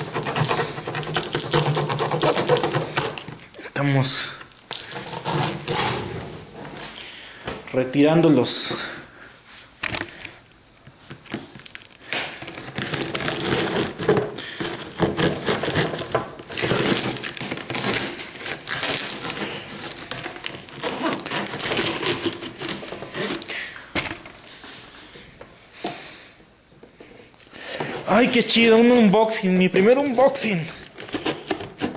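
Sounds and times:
cardboard box tearing open: 0.0s - 3.4s, 4.7s - 6.9s, 12.4s - 23.5s, 27.9s - 31.9s.

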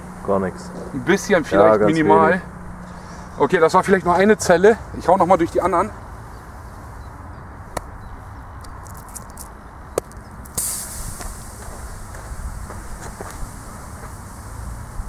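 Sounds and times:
battery venting gas hiss: 10.4s - 15.0s.

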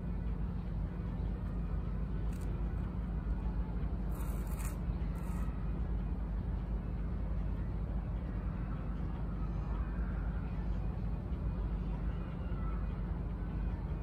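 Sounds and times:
outdoor background rumble: 0.0s - 14.0s.

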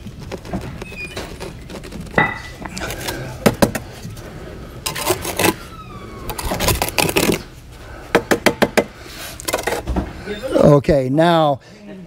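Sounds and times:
falling squeak: 0.7s - 1.7s, 5.4s - 6.8s.

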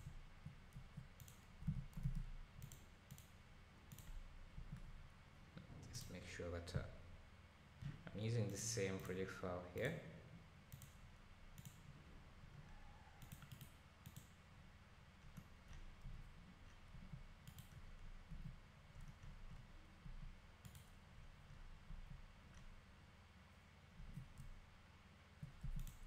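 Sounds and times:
low steady hum: 0.0s - 26.0s
faint computer clicks: 0.7s - 3.3s, 3.9s - 4.8s, 10.7s - 11.0s, 11.6s - 11.8s, 13.2s - 14.4s, 15.2s - 19.6s, 20.2s - 21.0s, 25.4s - 26.0s.

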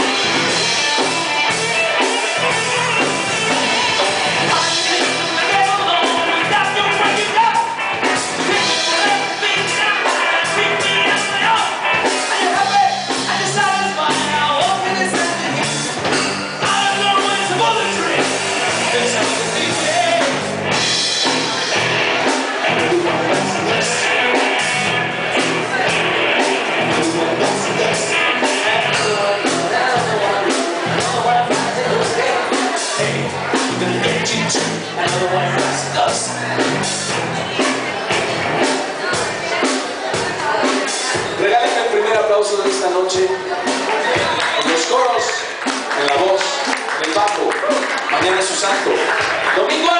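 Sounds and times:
hard rock band playing: 0.0s - 49.9s
male lead vocal: 3.6s - 16.0s, 16.6s - 20.6s, 22.3s - 36.9s.

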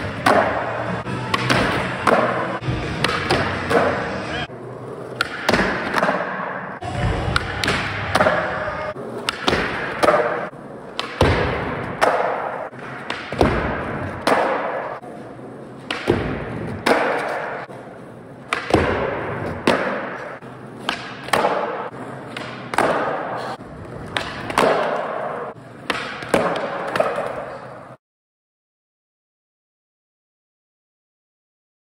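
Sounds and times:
skateboard knocks and landings: 4.9s - 17.8s, 18.4s - 27.6s
skateboard rolling on concrete: 23.4s - 25.9s.

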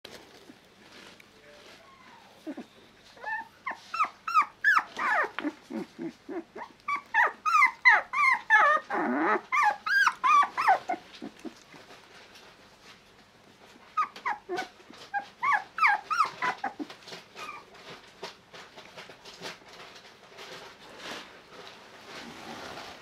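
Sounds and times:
puppy yipping and whining: 1.8s - 11.6s, 13.9s - 17.9s
puppy growling: 2.2s - 11.8s, 14.0s - 18.0s.

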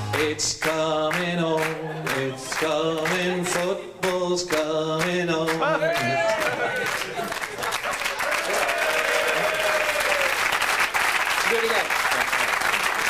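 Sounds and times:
person singing unaccompanied: 0.0s - 6.7s.

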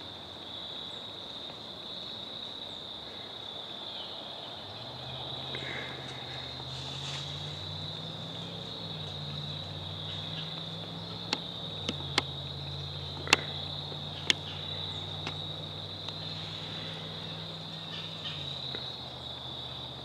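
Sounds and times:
crickets trilling: 0.0s - 20.0s
sharp clicks: 11.2s - 12.4s, 13.1s - 15.4s.

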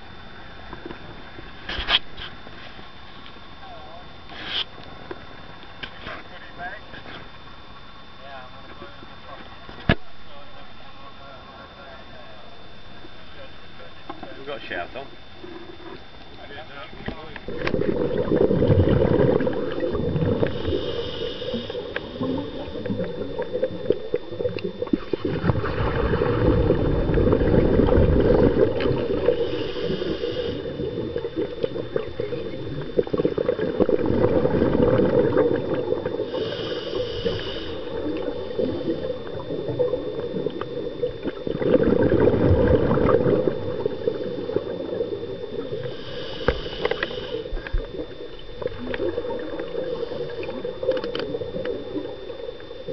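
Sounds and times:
regulator hiss on inhale: 4.3s - 5.2s, 17.4s - 41.7s, 43.0s - 52.9s
gurgling exhaled bubbles: 17.0s - 52.9s.

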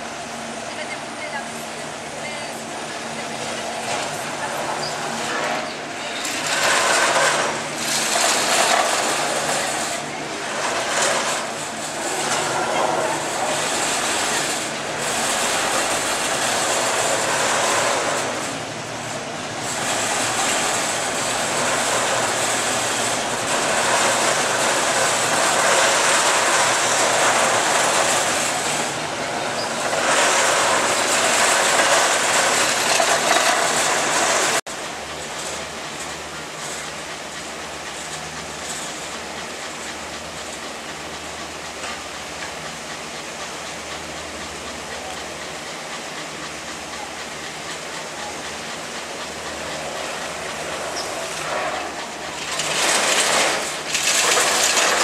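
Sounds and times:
gondola lift rumble and clatter: 0.0s - 55.0s.

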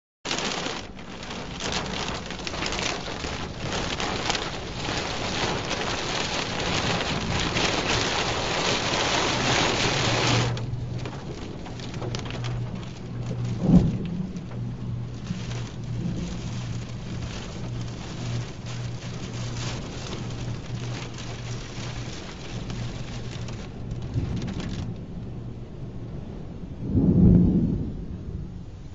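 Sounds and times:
heavy rain on car windshield: 0.3s - 25.5s
steady low hum: 1.2s - 28.9s
loud boom: 26.8s - 28.7s.

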